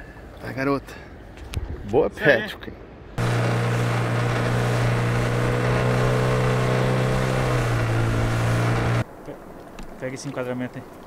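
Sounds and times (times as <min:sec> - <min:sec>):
wind and water rushing: 0:03.1 - 0:11.0
outboard motor drone: 0:03.2 - 0:09.0.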